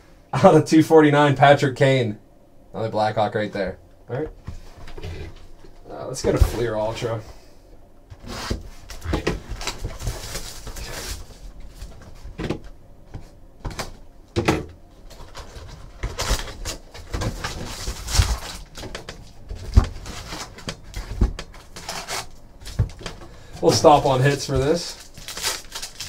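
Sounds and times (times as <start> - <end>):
shrink wrap crinkling: 8.9 - 12.2, 15.1 - 26.0.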